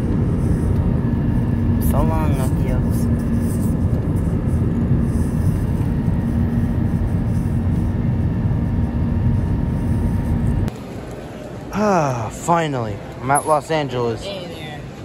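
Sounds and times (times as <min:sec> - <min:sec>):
airplane cabin engine rumble: 0:00.0 - 0:11.1.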